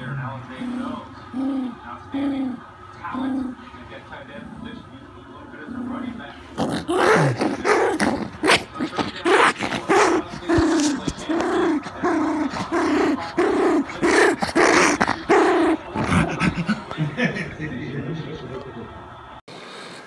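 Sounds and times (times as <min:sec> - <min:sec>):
puppy growling and yapping: 0:05.6 - 0:16.8.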